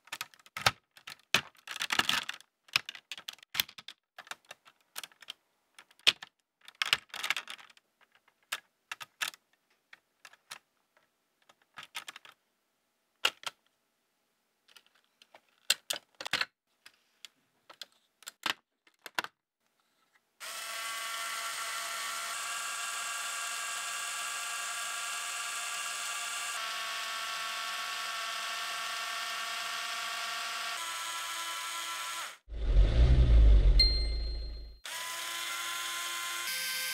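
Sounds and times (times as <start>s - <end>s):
plastic parts clicking and snapping: 0.0s - 12.4s, 13.2s - 13.7s, 14.6s - 19.4s
toy motors whirring: 20.4s - 32.5s, 34.8s - 36.9s.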